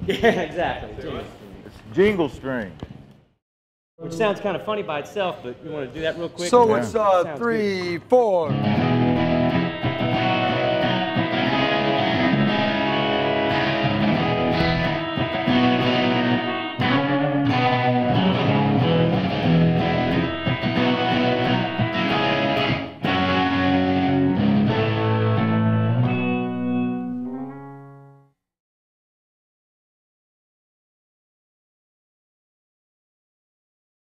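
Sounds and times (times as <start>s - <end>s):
electric guitar arpeggio: 8.5s - 28.2s.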